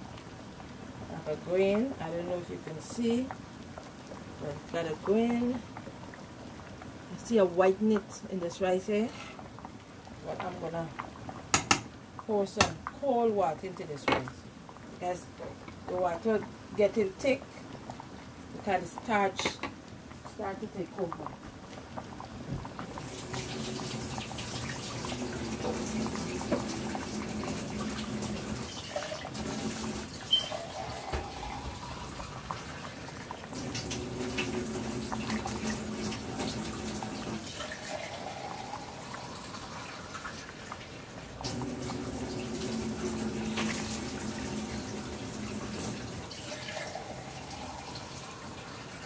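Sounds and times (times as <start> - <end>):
water pouring into pot: 21.3 - 49.0
water gurgling: 21.8 - 49.0.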